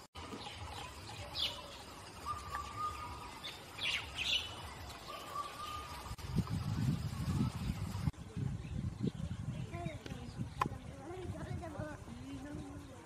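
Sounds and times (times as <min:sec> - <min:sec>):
birds chirping: 0:00.0 - 0:13.0
bird whistling: 0:02.2 - 0:06.2.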